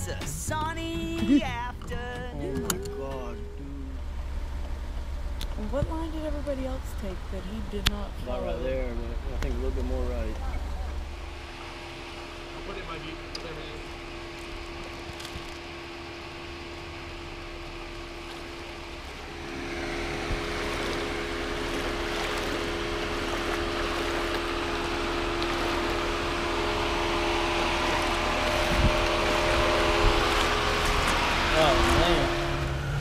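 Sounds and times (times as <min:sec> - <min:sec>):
vehicle engine humming: 0:00.0 - 0:33.0
broad rushing noise: 0:19.2 - 0:32.7.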